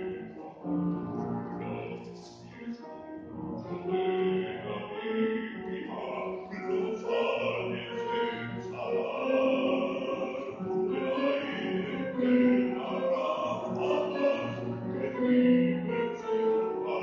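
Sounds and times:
grand piano: 0.0 - 17.0
deep bass voice singing opera: 4.4 - 15.5.

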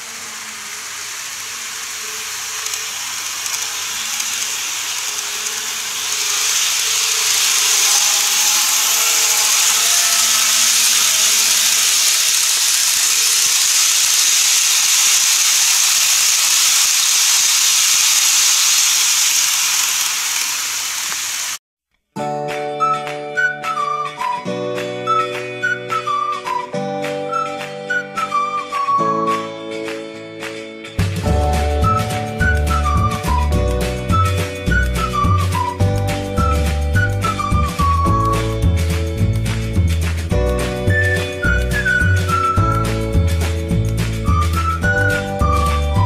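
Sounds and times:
model trains rushing hiss: 0.0 - 21.6, 40.7 - 43.1.

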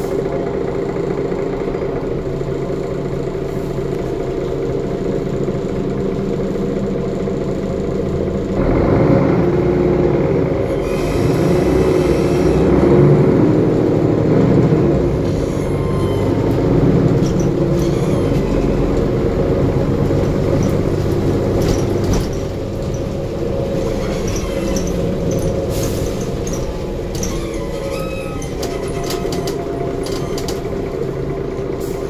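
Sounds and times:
bus diesel engine drone: 0.0 - 32.0
interior rattles and clicks: 14.1 - 32.0.

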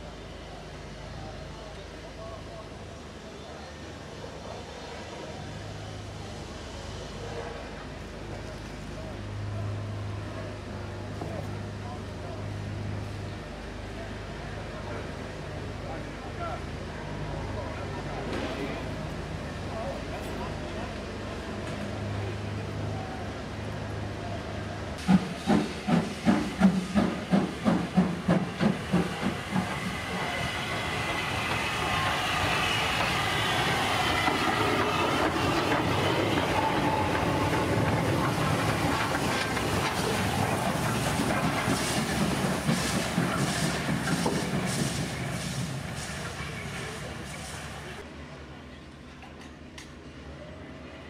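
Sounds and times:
steam hissing: 25.0 - 48.0
steam locomotive exhaust chuffs: 25.0 - 48.0.

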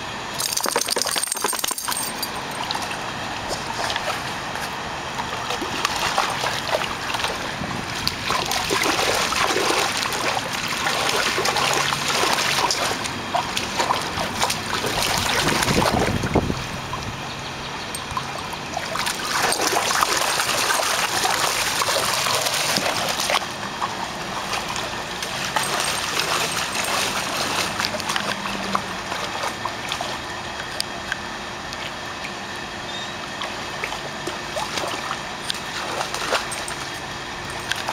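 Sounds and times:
dog splashing in water: 5.4 - 16.3, 18.2 - 23.5, 24.3 - 30.2, 33.4 - 36.9.

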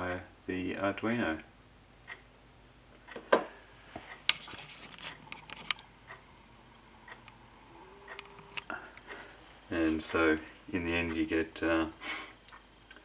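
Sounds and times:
light rubbing: 3.8 - 5.9.

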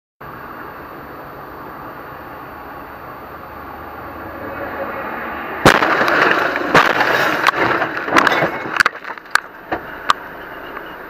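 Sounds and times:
car crash crunching and scraping: 5.6 - 10.9
sharp knocks and rattles: 5.7 - 10.2.

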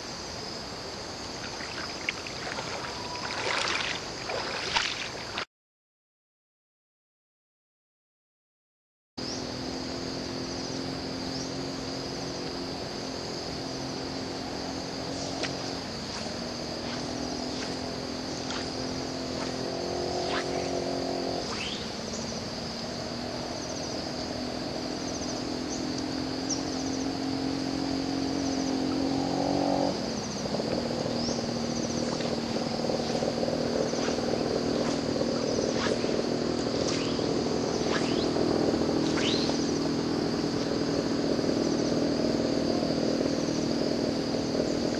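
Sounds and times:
insects buzzing: 0.0 - 5.4, 9.2 - 44.9
low engine hum: 0.0 - 5.4, 9.2 - 44.9.

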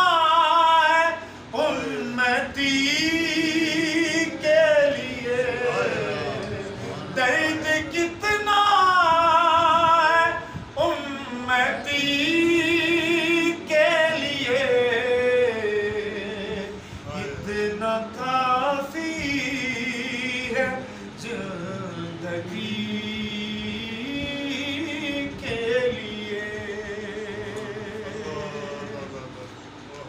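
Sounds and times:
man singing unaccompanied: 0.0 - 29.3.

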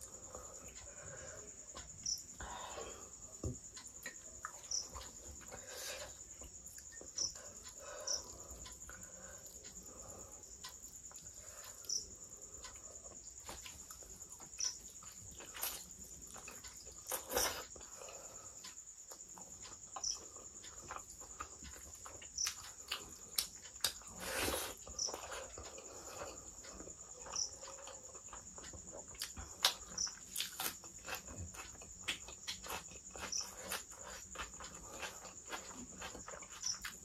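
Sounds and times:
faint steady high whine: 0.0 - 37.0
mouth chewing and smacking: 19.1 - 37.0.

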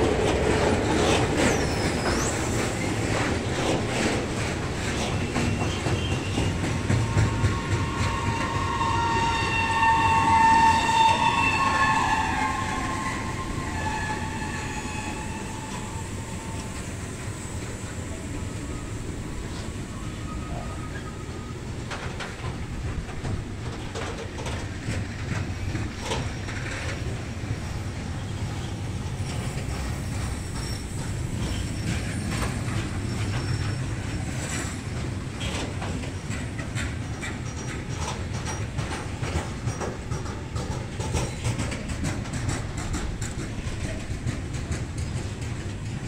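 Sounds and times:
train wheels rumbling: 0.0 - 46.0
wheels clicking over rail joints: 21.8 - 27.6, 29.2 - 46.0.

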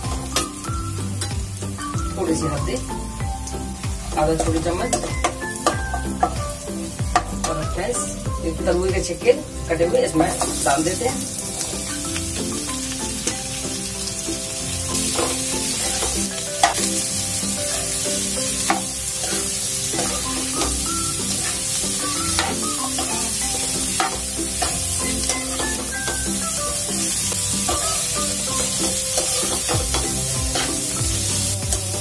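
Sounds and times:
food sizzling in hot oil: 0.0 - 32.0
metal ladle stirring: 18.7 - 26.2.

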